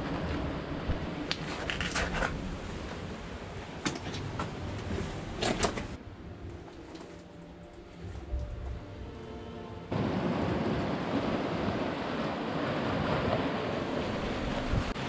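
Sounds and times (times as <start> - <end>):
low rumble: 0.0 - 12.0
shoes scraping on rock and stones: 1.4 - 2.4.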